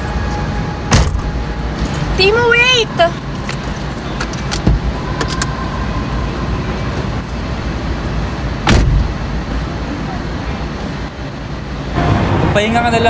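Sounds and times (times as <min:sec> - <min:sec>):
steady low rumble: 0:00.0 - 0:13.0
car door thudding shut: 0:08.6 - 0:09.1
car door latch clicks: 0:08.7 - 0:09.0.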